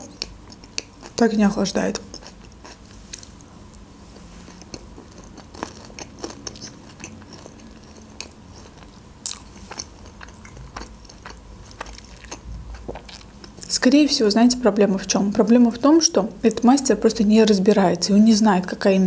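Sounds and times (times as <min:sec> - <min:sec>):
chewing salad with crunches: 0:00.0 - 0:13.9.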